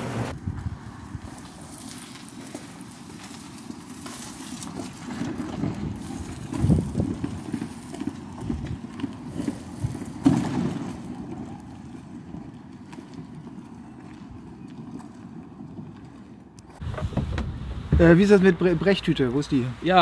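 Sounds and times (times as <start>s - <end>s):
low knocks and bumps: 16.8s - 19.1s.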